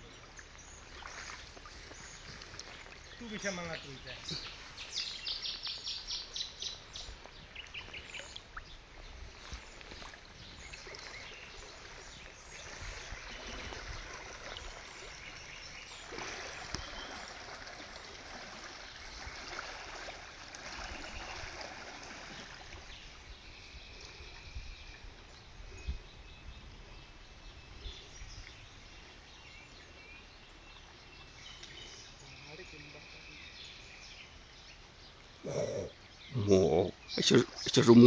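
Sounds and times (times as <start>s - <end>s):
bird chirping: 0.0s - 8.8s
river water flowing: 0.0s - 25.7s, 28.6s - 38.0s.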